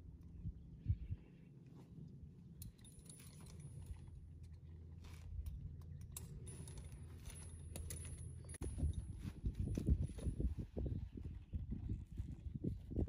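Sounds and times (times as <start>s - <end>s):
low steady rumble: 0.0s - 13.0s
saddle tack clicking and jingling: 2.6s - 12.5s.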